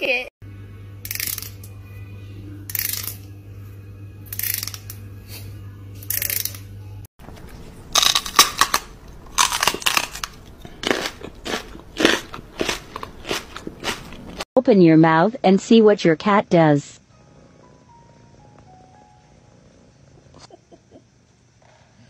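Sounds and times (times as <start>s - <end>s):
low steady hum: 0.0s - 21.4s
sharp crackly crunching: 7.3s - 14.4s.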